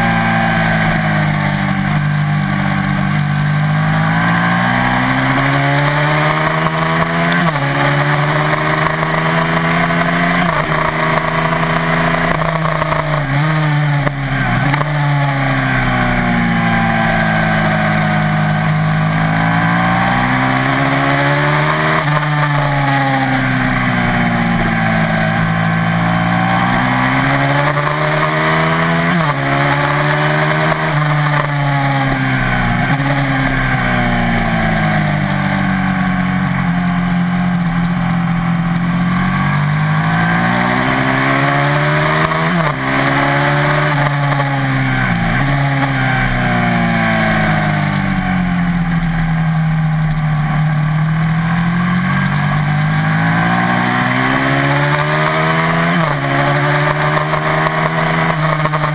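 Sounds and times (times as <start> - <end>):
motorcycle engine revving: 0.0 - 58.9.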